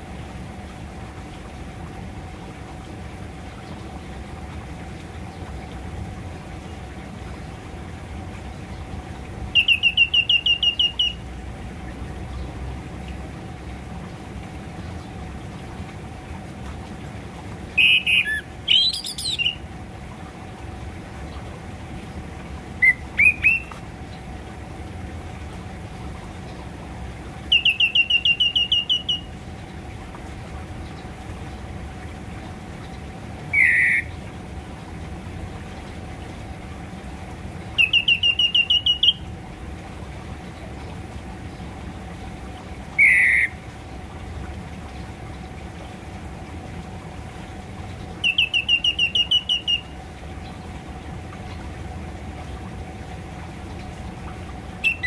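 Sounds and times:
steady low hum: 0:00.0 - 0:55.0
thrush calling: 0:09.5 - 0:11.2, 0:17.8 - 0:19.6, 0:22.8 - 0:23.8, 0:27.5 - 0:29.3, 0:33.5 - 0:34.1, 0:37.8 - 0:39.2, 0:43.0 - 0:43.6, 0:48.2 - 0:50.0, 0:54.8 - 0:55.0.

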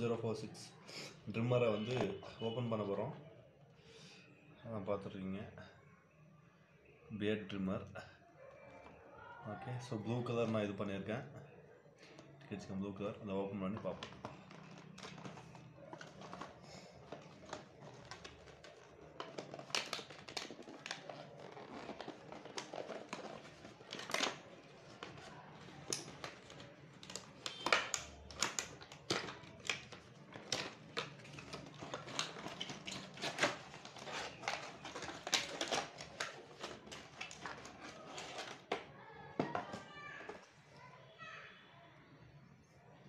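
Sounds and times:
rustling packaging: 0:13.6 - 0:40.6
packaging snaps: 0:13.8 - 0:39.8.

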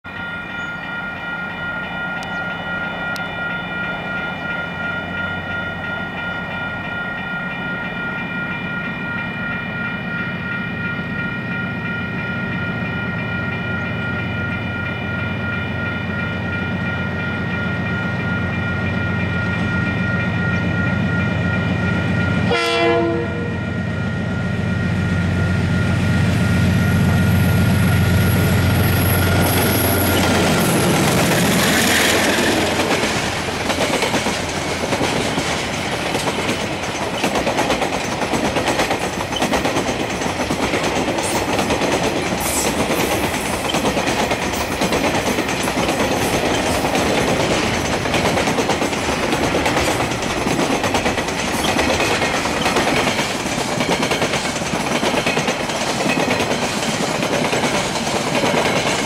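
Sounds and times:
level crossing alarm ringing: 0:00.1 - 0:33.8
diesel locomotive engine rumble: 0:00.2 - 0:59.0
train horn blast: 0:22.4 - 0:23.8.

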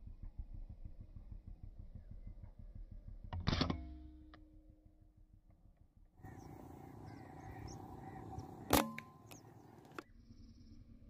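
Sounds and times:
faint steady hum: 0:00.0 - 0:11.0
small birds chirping: 0:06.2 - 0:11.0.

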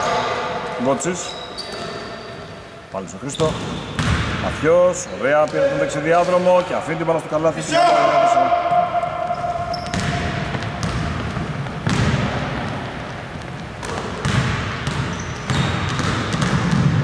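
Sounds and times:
sneaker squeaks: 0:01.0 - 0:06.5, 0:08.6 - 0:12.2, 0:13.4 - 0:16.9
basketball bouncing on hardwood floor: 0:04.0 - 0:04.3, 0:09.7 - 0:12.8, 0:13.4 - 0:17.0.

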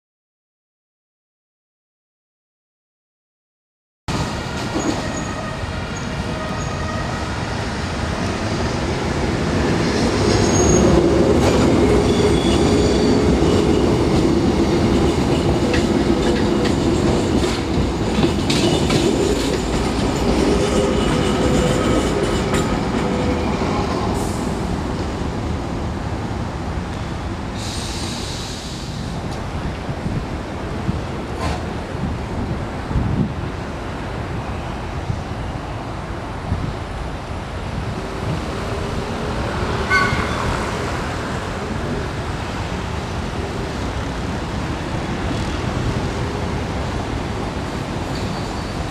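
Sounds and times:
tram wheels squealing: 0:04.1 - 0:08.8, 0:09.8 - 0:24.7, 0:38.6 - 0:42.0, 0:48.0 - 0:48.9
tram running noise with low hum: 0:04.1 - 0:48.9.

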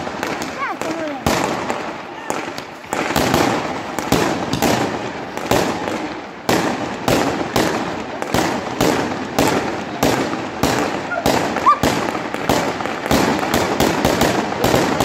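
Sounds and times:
fireworks bangs: 0:00.0 - 0:15.0
fireworks crackling: 0:00.0 - 0:15.0.

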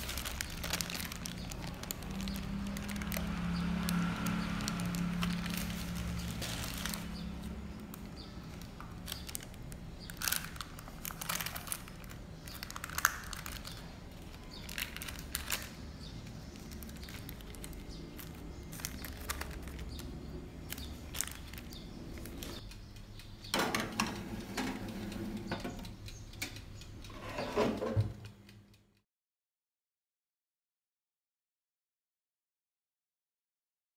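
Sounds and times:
baking paper crinkling: 0:00.0 - 0:22.6
small clicks and crackles: 0:00.0 - 0:23.0.

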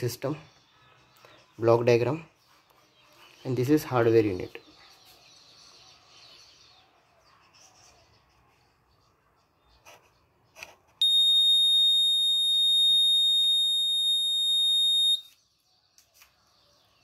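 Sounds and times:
high-pitched buzzer beep: 0:11.0 - 0:15.2.

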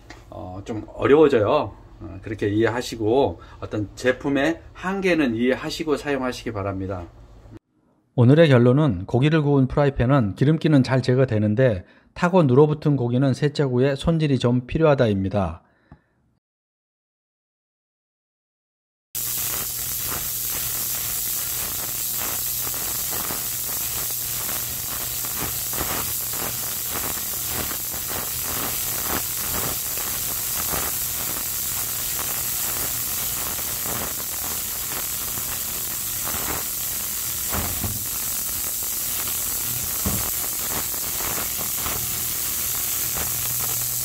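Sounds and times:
ultrasonic cleaner hiss and hum: 0:19.2 - 0:44.0.

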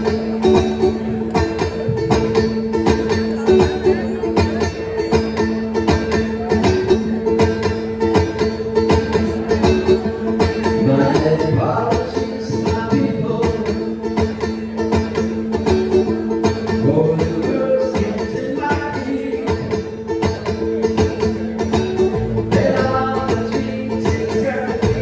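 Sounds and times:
banjo picking: 0:00.0 - 0:25.0
drums with steady beat: 0:00.0 - 0:25.0
guitar: 0:00.0 - 0:25.0.

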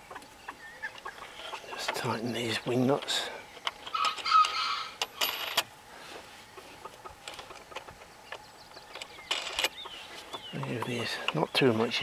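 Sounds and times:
metal clicks and rattles of nuts: 0:07.2 - 0:09.8.

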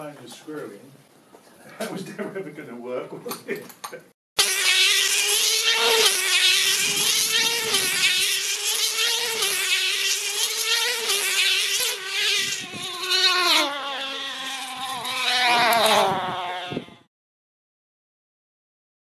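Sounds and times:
model engine high-pitched whine: 0:04.4 - 0:16.9.

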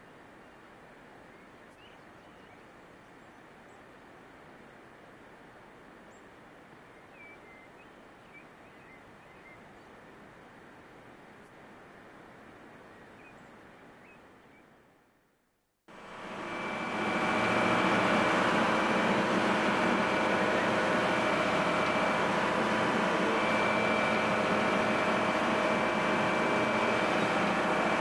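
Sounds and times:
boat engine droning: 0:15.9 - 0:28.0.

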